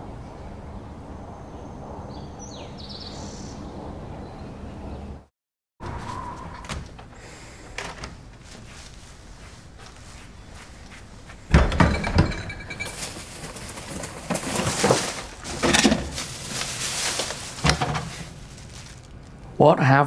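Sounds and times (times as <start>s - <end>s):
rustling in a fridge: 5.8s - 19.5s
fridge door thump and creak: 6.4s - 8.3s, 11.5s - 12.5s.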